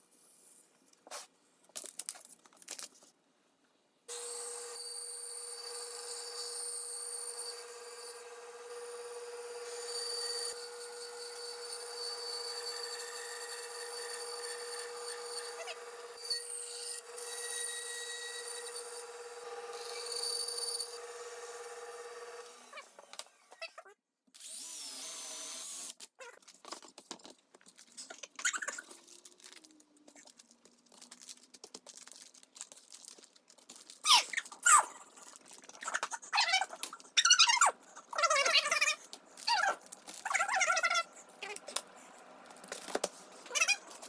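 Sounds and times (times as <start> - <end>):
band saw cutting wood: 4.1 - 23.6
paper rustling and folding: 26.2 - 37.1, 37.9 - 44.0.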